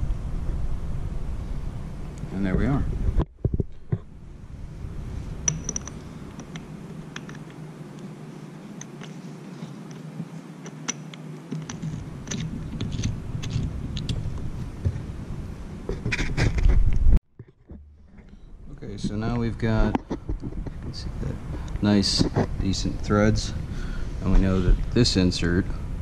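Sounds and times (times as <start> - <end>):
bumps and rustle: 15.8 - 23.1.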